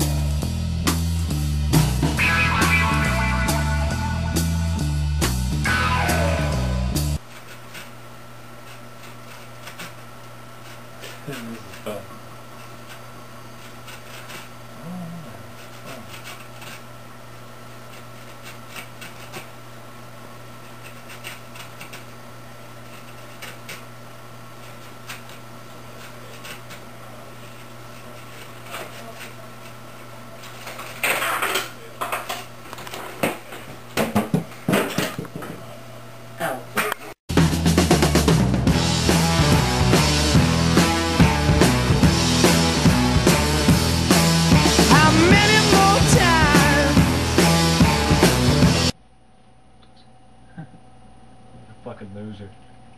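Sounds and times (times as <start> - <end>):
steady electrical hum: 0.0 - 37.2, 38.7 - 52.9.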